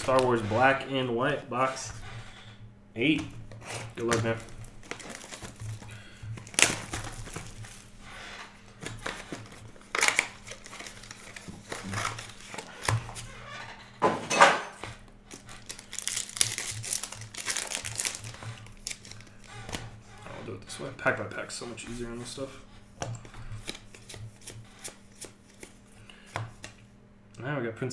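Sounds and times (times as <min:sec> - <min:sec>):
plastic wrappers crinkling and tearing: 0:00.0 - 0:00.8, 0:03.8 - 0:08.0, 0:08.7 - 0:13.3, 0:15.2 - 0:19.9.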